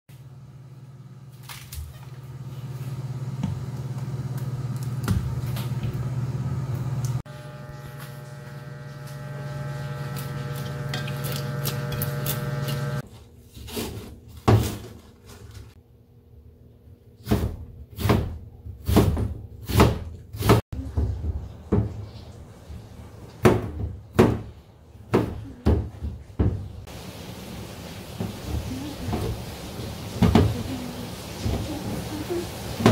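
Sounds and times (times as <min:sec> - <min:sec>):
knife chopping on cutting board: 0:17.2 - 0:20.6
water boiling in a pot: 0:26.8 - 0:32.9.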